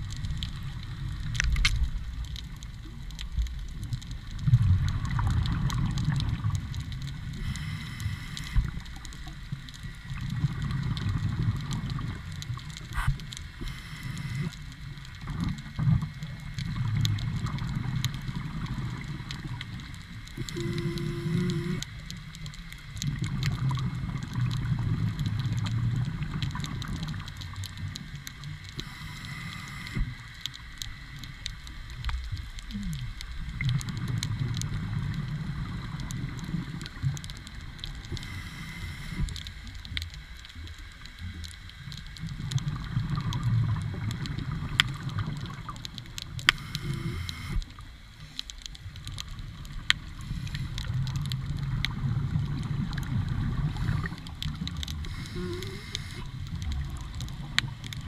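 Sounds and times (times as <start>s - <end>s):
exhaled air bubbling: 0.0s - 58.0s
faint clicks: 0.1s - 58.0s
regulator hiss: 7.3s - 9.0s, 13.0s - 14.8s, 20.4s - 21.9s, 28.8s - 30.4s, 38.1s - 39.7s, 46.5s - 48.4s, 50.2s - 51.0s, 55.0s - 56.4s.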